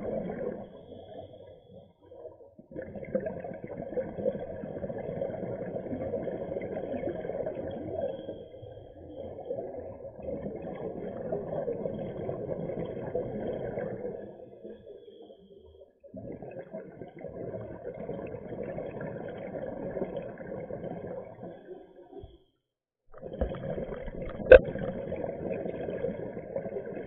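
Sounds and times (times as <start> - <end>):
underwater gurgling: 0.0 - 22.4, 23.1 - 27.0
muffled underwater rumble: 23.2 - 27.0.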